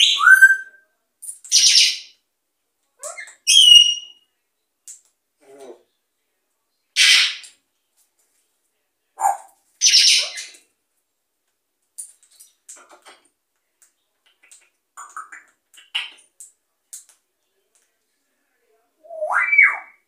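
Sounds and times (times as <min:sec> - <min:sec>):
parrot squawking: 0:07.0 - 0:07.4, 0:09.2 - 0:10.6, 0:19.1 - 0:20.0
parrot soft clicks and chirps: 0:13.8 - 0:17.8.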